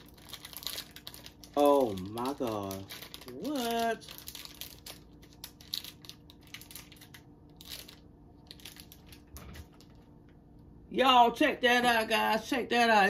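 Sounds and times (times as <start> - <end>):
plastic wrapper crinkling: 0.0 - 10.2.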